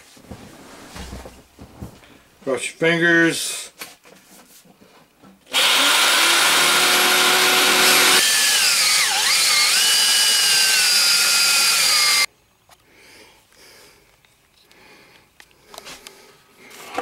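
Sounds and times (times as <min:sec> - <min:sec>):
corded drill cutting sheet metal: 0:05.5 - 0:12.3
cordless drill with hole saw: 0:05.5 - 0:12.3.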